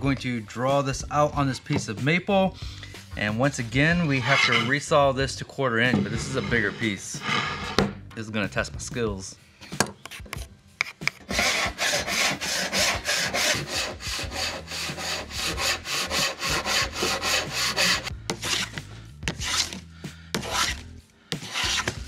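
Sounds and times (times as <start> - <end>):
hand plane strokes: 3.8 - 4.9, 5.8 - 8.0, 10.9 - 22.0
hand saw rasping: 3.8 - 4.9, 6.0 - 7.8, 11.3 - 19.8, 20.4 - 22.0.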